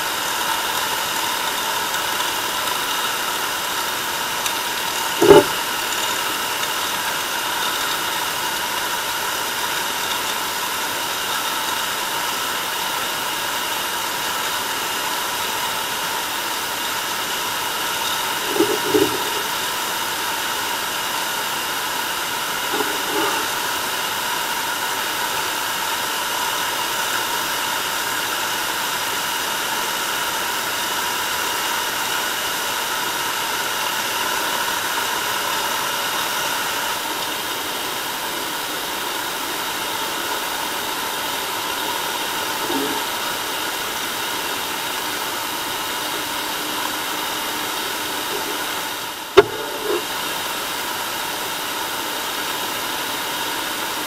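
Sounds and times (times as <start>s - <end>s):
steady hiss: 0.0s - 26.4s
muffled knock: 49.4s - 50.0s.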